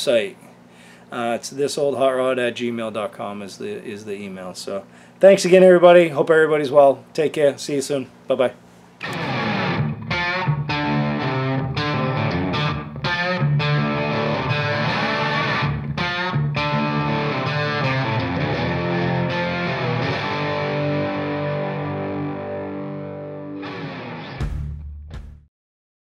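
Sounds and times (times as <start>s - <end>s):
distorted electric guitar chords: 9.0s - 24.8s.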